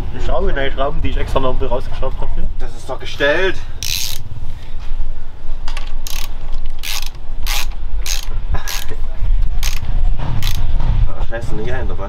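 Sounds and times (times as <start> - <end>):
ratchet wrench ratcheting: 3.8 - 4.3, 6.0 - 9.0, 9.6 - 10.7.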